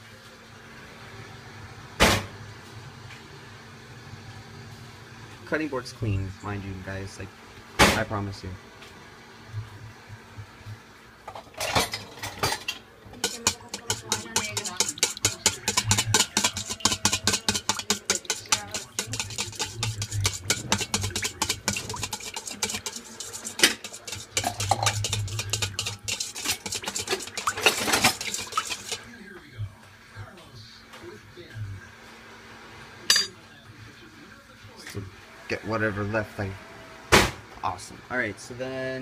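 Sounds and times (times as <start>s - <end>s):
spoon stirring in metal bowl: 11.6s - 29.1s.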